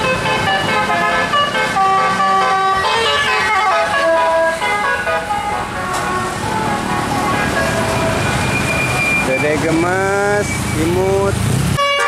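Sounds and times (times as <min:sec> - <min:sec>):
horn playing fast melody: 0:00.0 - 0:08.5, 0:11.8 - 0:12.0
vehicle driving past: 0:02.9 - 0:11.8.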